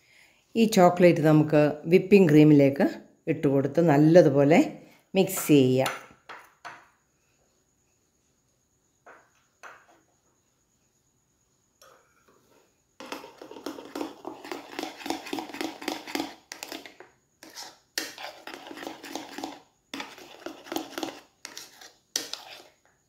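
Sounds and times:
metal spoon scraping ceramic bowl: 0:13.0 - 0:22.9.

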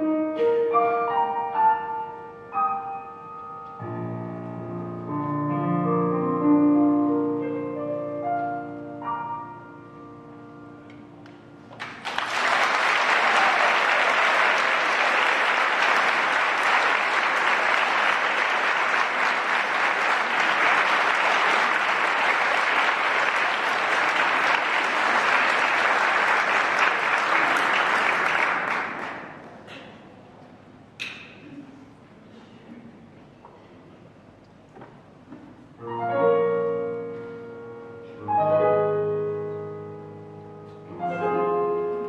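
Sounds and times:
audience applause: 0:11.8 - 0:29.6.

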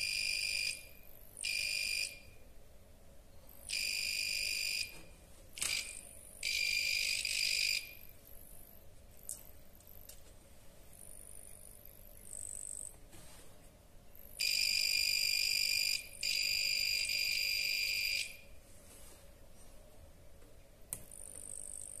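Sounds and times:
piezo buzzer high-pitched tone: 0:00.0 - 0:02.4, 0:03.6 - 0:08.7, 0:14.2 - 0:18.5.

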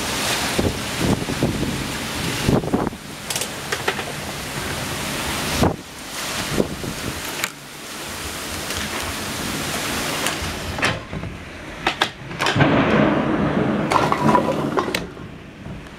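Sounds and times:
torrential rain hissing: 0:00.0 - 0:15.9
sharp knocks and clicks: 0:10.8 - 0:12.7.

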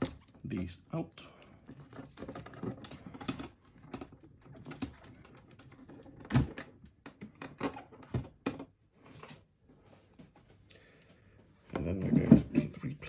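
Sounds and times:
plastic rustling: 0:00.0 - 0:08.4.

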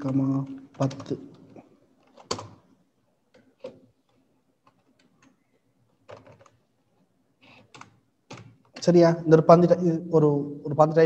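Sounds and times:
keyboard keystrokes clicking: 0:02.1 - 0:02.6.

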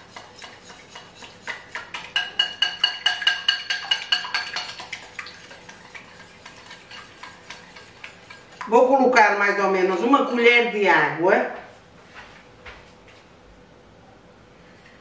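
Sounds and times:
whisk clinking against bowl: 0:00.0 - 0:08.7.

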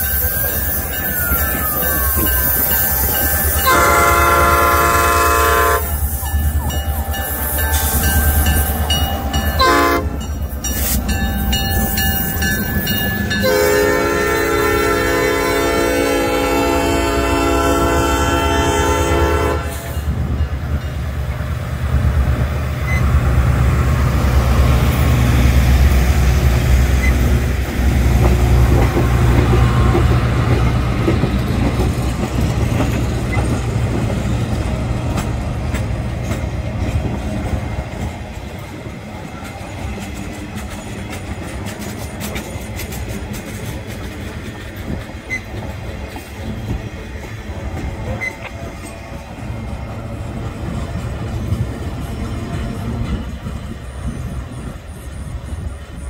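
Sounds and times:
train wheels rumbling on track: 0:00.0 - 0:56.0
wheels clicking over rail joints: 0:20.1 - 0:56.0.

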